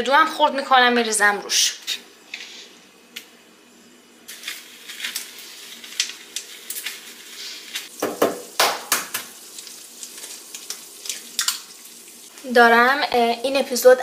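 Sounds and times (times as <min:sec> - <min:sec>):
sauce sizzling in a frying pan: 0:04.3 - 0:14.0.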